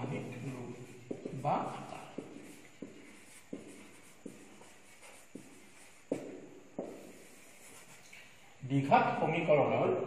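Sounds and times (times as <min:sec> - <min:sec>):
marker tapping on whiteboard: 0:05.4 - 0:07.2.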